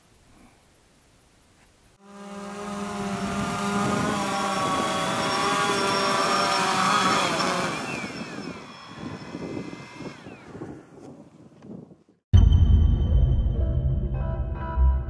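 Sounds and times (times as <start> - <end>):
drone motors whining: 2.0 - 10.9.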